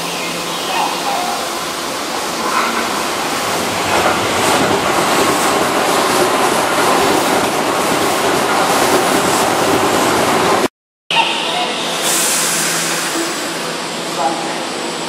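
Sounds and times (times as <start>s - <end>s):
train wheels on rails: 0.4s - 10.7s.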